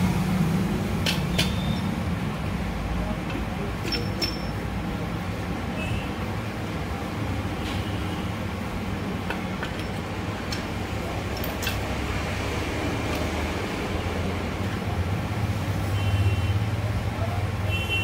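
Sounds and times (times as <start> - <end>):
low rumble of vehicles: 0.0 - 18.0
light metallic clicks: 9.3 - 12.0.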